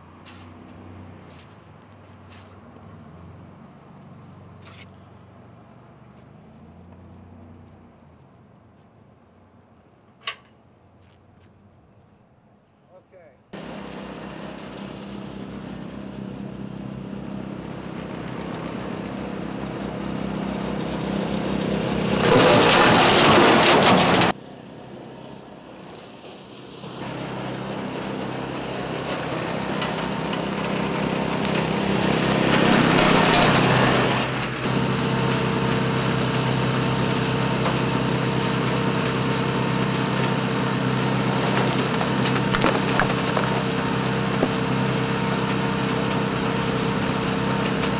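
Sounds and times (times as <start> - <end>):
vacuum sweeper engine running: 13.6 - 47.9.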